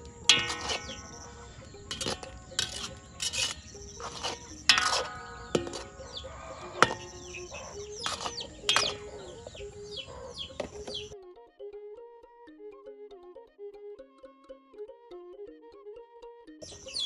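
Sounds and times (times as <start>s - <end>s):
metal skimmer scraping metal pan: 0.0s - 11.1s
faint music: 0.0s - 17.0s.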